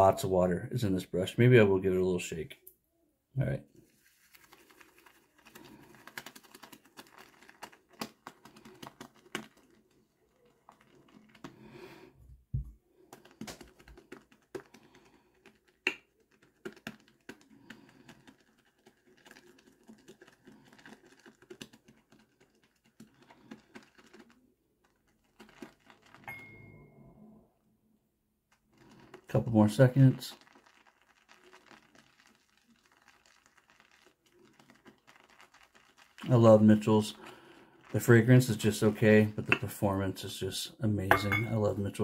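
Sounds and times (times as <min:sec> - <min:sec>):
shaving brush squishing on soap: 0:03.8 - 0:12.2, 0:12.9 - 0:26.3, 0:28.5 - 0:40.2.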